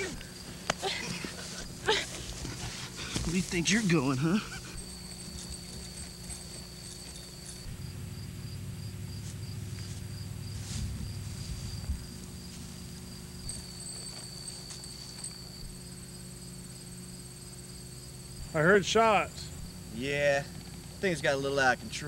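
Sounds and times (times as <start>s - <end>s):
low hum: 0.0s - 21.0s
steady high-pitched whine: 0.0s - 22.0s.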